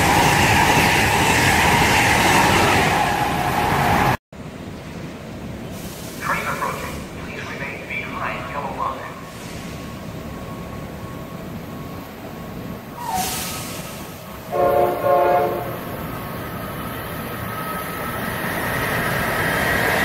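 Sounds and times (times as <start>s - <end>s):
train rumble: 0.0s - 20.0s
train horn blast: 14.5s - 15.9s.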